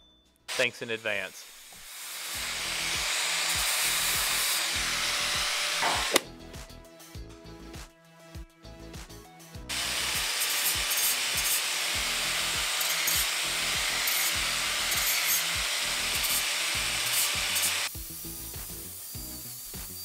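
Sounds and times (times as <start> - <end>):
angle grinder grinding steel: 0.5 - 6.2, 9.7 - 20.0.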